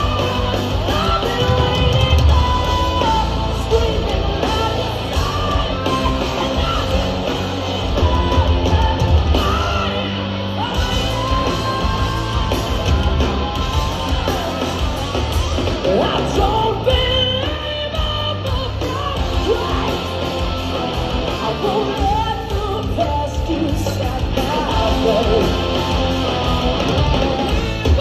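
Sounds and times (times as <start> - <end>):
distorted electric guitars and bass: 0.0 - 28.0
woman singing and shouting: 15.9 - 20.1.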